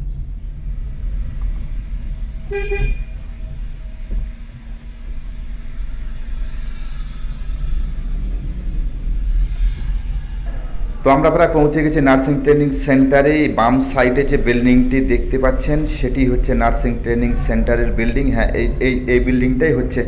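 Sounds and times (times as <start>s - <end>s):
car engine and road rumble: 0.0s - 20.0s
car horn toot: 2.5s - 3.2s.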